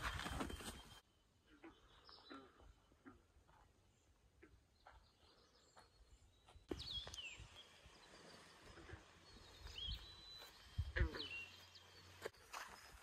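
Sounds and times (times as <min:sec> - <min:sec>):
faint bird calls: 0:00.0 - 0:13.0.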